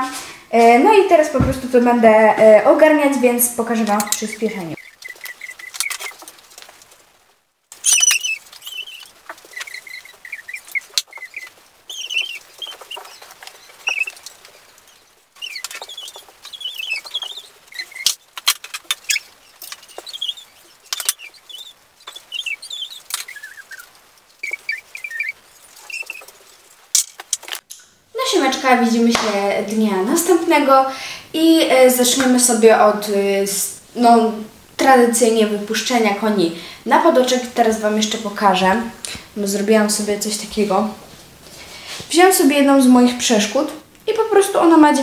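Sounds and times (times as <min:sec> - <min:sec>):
high chirp-like squeaks: 0:03.8 - 0:06.6, 0:07.7 - 0:27.5
rope rustling and clicks: 0:04.0 - 0:27.9.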